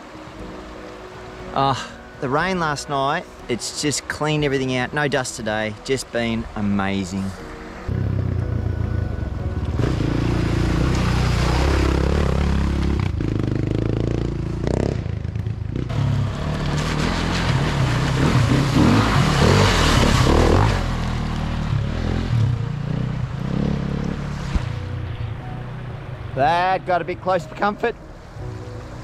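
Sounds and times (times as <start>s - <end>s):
dirt bike engine revving: 9.5s - 24.4s
water spraying: 16.2s - 21.6s.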